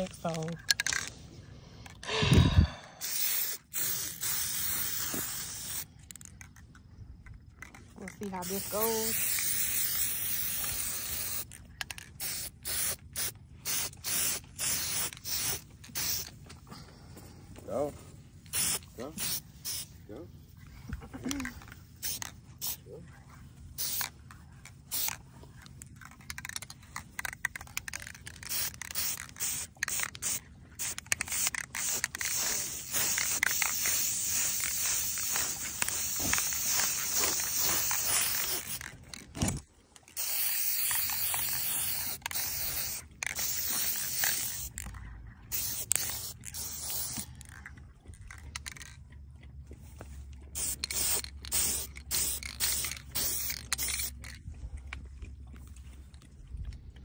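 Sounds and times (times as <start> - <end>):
spray paint can hissing: 2.4 - 6.3, 8.1 - 16.4, 18.4 - 19.9, 21.3 - 22.8, 23.8 - 24.1, 24.9 - 25.2, 26.2 - 38.9, 40.2 - 47.6, 50.6 - 54.3.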